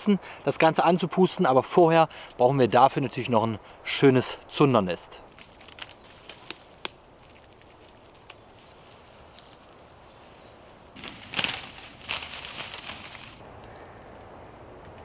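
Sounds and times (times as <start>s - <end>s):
dry reeds rustling and crackling: 5.3s - 15.0s.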